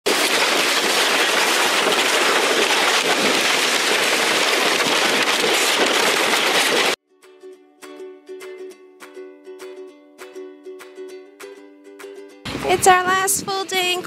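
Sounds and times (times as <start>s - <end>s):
rushing air on microphone: 0.1s - 7.0s
sled scraping over ice: 0.1s - 7.0s.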